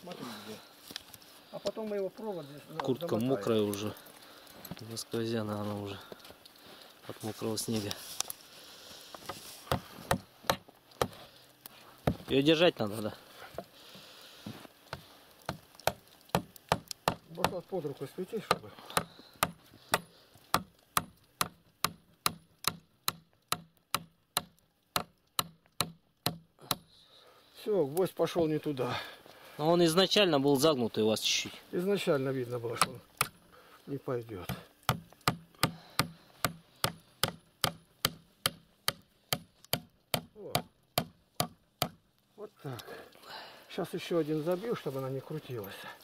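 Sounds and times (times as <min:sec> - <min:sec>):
hammer hitting nail into wood: 0:18.5 - 0:26.8, 0:34.5 - 0:42.0
hammer driving nail into wood: 0:34.9 - 0:42.0.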